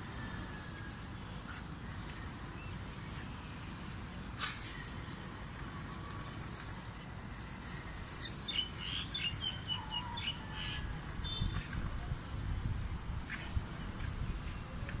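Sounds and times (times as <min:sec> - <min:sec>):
small birds chirping: 0:05.8 - 0:15.0.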